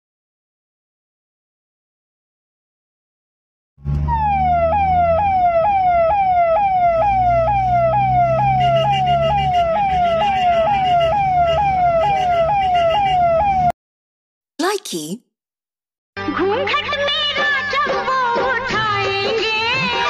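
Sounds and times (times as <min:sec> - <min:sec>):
electronic siren-like tone: 0:04.0 - 0:13.7.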